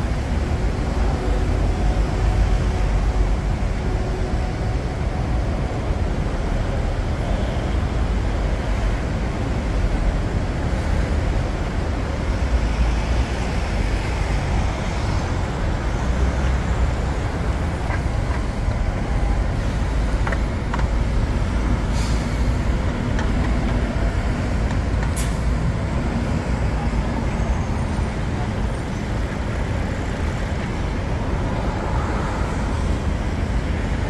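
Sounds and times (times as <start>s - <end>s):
road traffic rumble: 0.0s - 34.0s.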